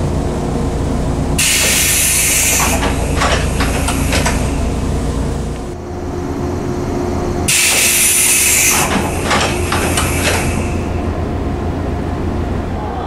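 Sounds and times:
steady low train hum: 0.0s - 13.0s
sharp hiss of air: 1.4s - 4.6s, 7.5s - 11.0s
train doors sliding shut: 1.4s - 5.8s, 7.4s - 12.2s.

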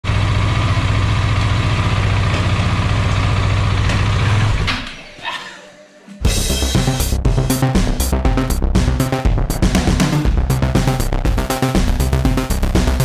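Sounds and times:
motorcycle engine idling: 0.0s - 4.7s
music with drums: 6.2s - 13.0s.

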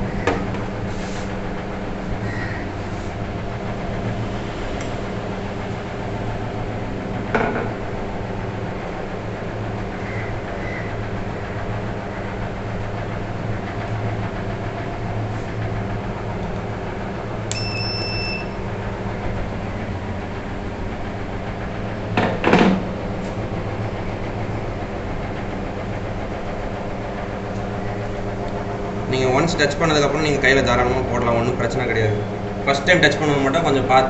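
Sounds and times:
steady low hum: 0.0s - 34.0s
loud scraping rustle: 0.9s - 1.3s
high electronic beep: 17.5s - 18.6s.

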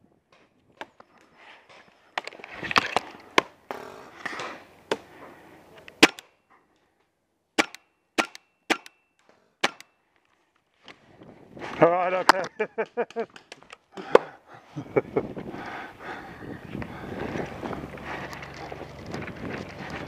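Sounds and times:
paintball gun cracks: 5.9s - 6.3s, 7.6s - 9.0s, 9.6s - 10.0s.

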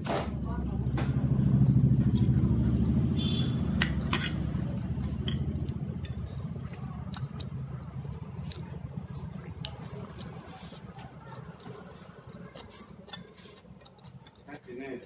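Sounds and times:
low engine rumble: 0.0s - 15.0s
cutlery clicking on a plate: 3.8s - 6.4s.

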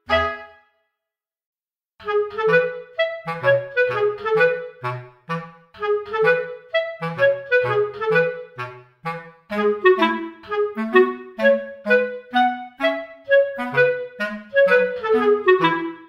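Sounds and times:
bouncy clarinet-like melody: 0.0s - 0.8s, 2.0s - 16.0s.

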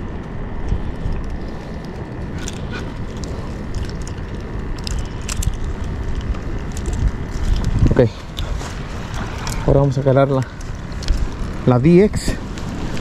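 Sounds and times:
wind noise on microphone: 0.0s - 13.0s.

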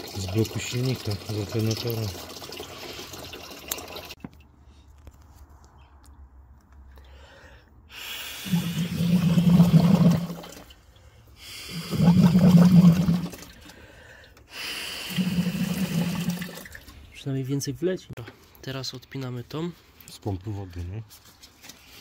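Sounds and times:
coolant gushing from hose: 0.0s - 4.2s, 8.4s - 10.8s, 11.6s - 13.7s, 14.9s - 16.9s.

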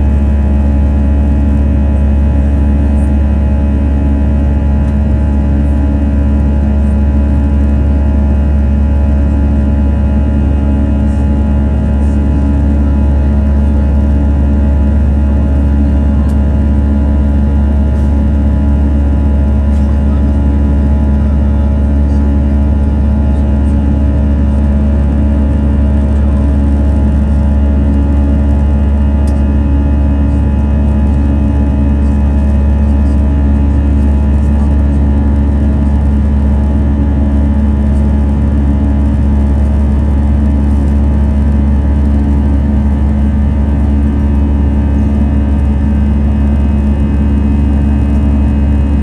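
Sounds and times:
constant cabin hum: 0.0s - 49.0s
jet engines droning: 42.0s - 49.0s.

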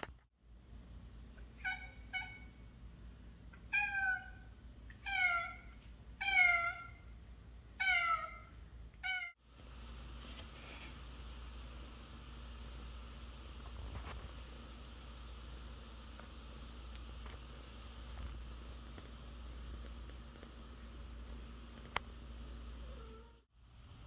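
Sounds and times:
cat meowing: 3.6s - 7.0s, 7.8s - 9.3s.

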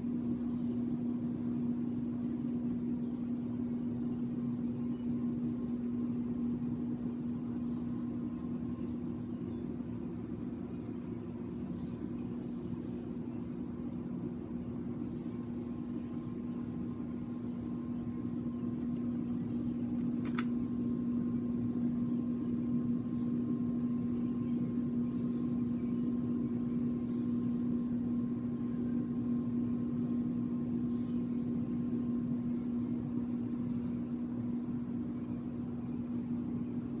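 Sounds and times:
faint high whine: 0.0s - 37.0s
low mechanical hum: 0.0s - 37.0s
sharp click: 20.0s - 20.6s.

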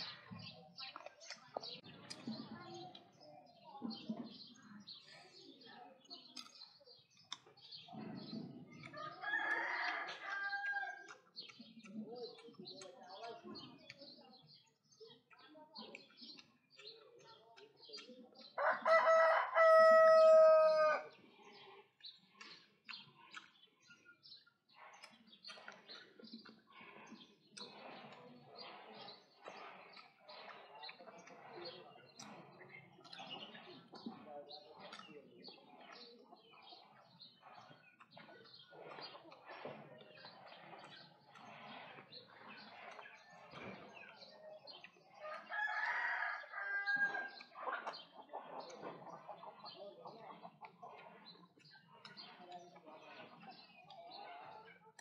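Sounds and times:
rooster crowing: 18.6s - 21.1s.

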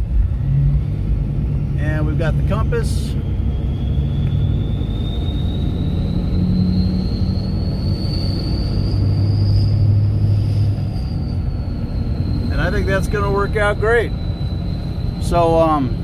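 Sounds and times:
engine and road rumble: 0.0s - 16.0s
high whine rising in pitch: 0.0s - 16.0s.

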